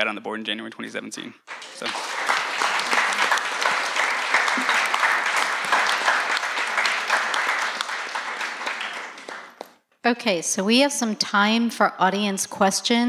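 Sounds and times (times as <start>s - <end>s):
audience applauding: 1.4s - 9.8s.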